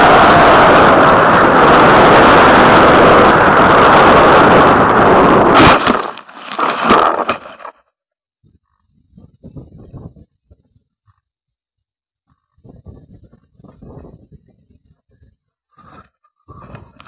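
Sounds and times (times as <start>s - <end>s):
rushing air: 0.0s - 7.4s
plane hitting ground: 0.0s - 7.6s.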